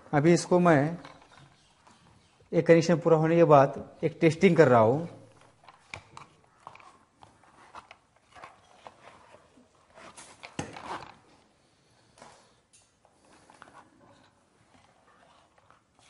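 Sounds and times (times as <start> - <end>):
wires rustling: 0.0 - 3.0.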